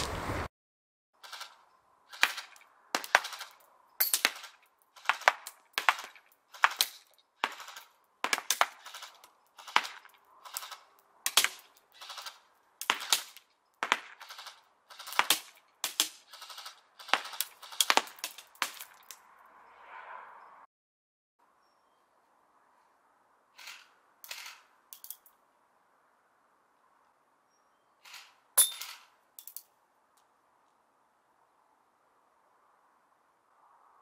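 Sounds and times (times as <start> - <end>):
airsoft gun firing: 2.1 - 18.8.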